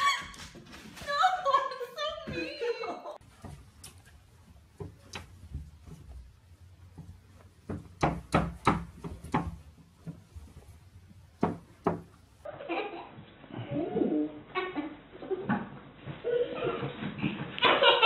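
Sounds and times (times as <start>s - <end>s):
sharp knocks on window sill: 7.0s - 10.2s, 11.4s - 12.2s.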